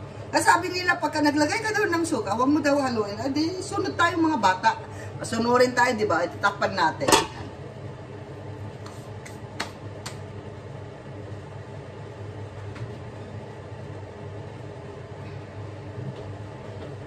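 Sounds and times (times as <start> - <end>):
pan heating with low hum: 0.0 - 17.0
metal lid clanking on pan: 7.0 - 7.4.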